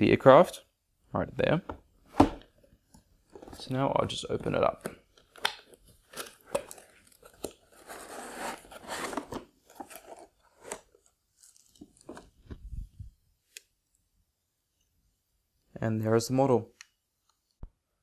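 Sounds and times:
packaging scraping and rustling: 5.7s - 12.4s.

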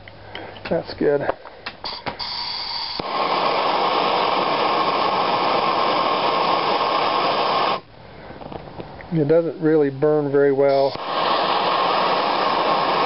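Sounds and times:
gas hissing: 1.6s - 13.0s
torch flame rushing: 1.8s - 8.7s, 10.5s - 13.0s.

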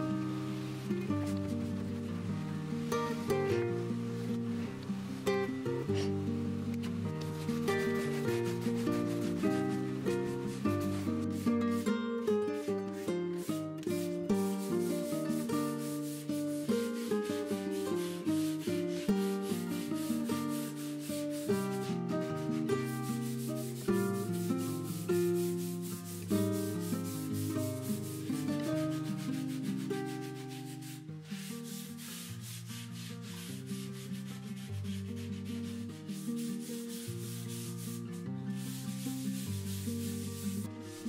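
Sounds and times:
sandpaper hand sanding: 7.4s - 11.8s, 13.4s - 40.7s.

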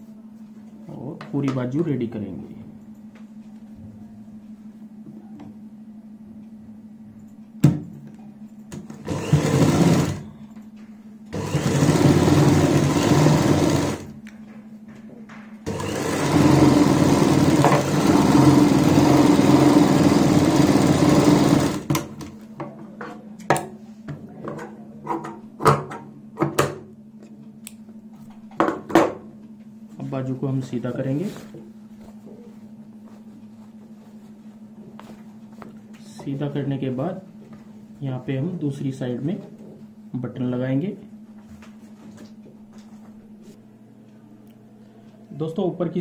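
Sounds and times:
steady low hum: 0.0s - 46.0s
sewing machine stitching: 8.9s - 10.3s, 11.3s - 14.1s, 15.7s - 22.2s.

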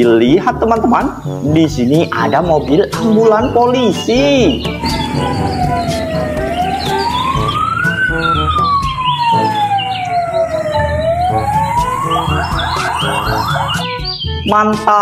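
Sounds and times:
traffic rumble: 4.2s - 13.9s
ambulance siren wailing and yelping: 4.2s - 14.1s.

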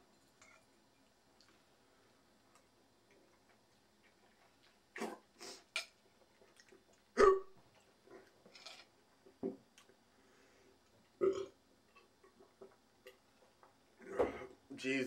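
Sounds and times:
person hiccuping: 7.2s - 7.5s.

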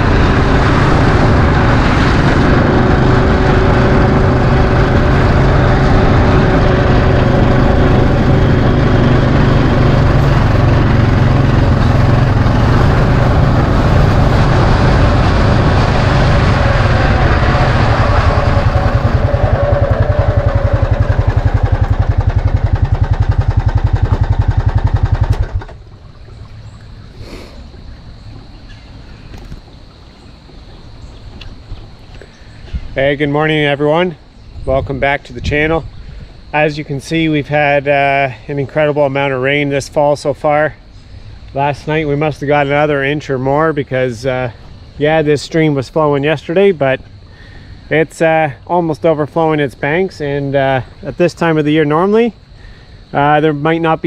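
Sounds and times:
atv engine running: 0.0s - 26.0s.

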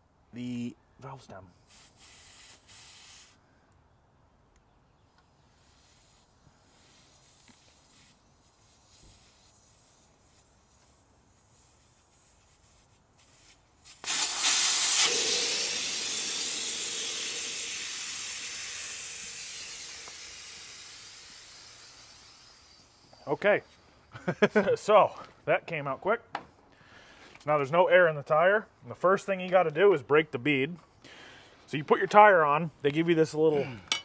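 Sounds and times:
air hissing out of tire: 1.6s - 3.5s, 5.4s - 24.0s.

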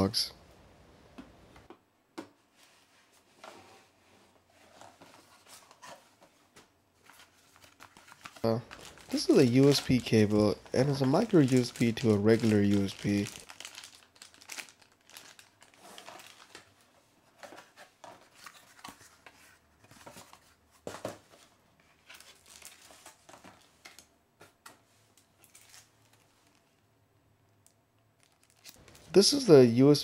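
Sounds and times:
plastic bags crinkling: 7.5s - 16.8s, 22.1s - 23.7s, 28.2s - 29.5s.

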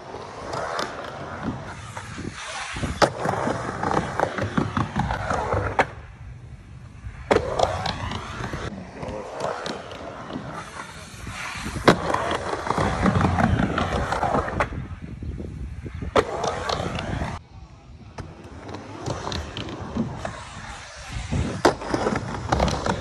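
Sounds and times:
skateboard wheels rolling on ramp: 0.0s - 23.0s
skateboard clacks: 18.1s - 23.0s.

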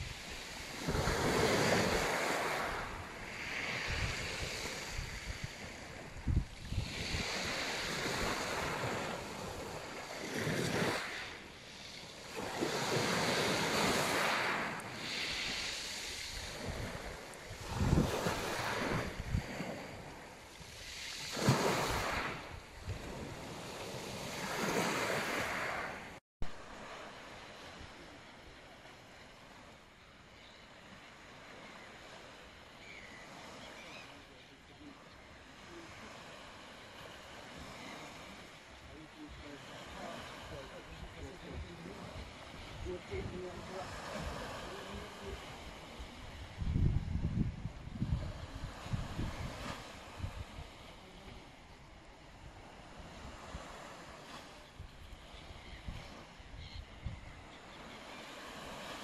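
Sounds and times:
sea waves washing on pebbles: 0.0s - 26.2s
wind buffeting microphone: 2.8s - 9.8s, 16.3s - 20.1s, 46.1s - 50.7s.

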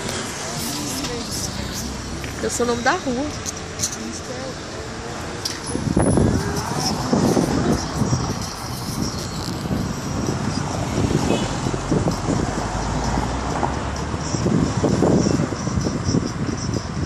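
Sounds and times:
tyres rumbling on brick road: 0.0s - 17.0s.

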